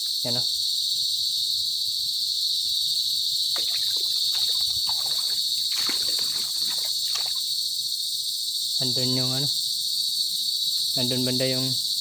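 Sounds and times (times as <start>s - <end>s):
high-pitched insect chorus: 0.0s - 12.0s
footsteps squelching through mud: 3.5s - 7.5s.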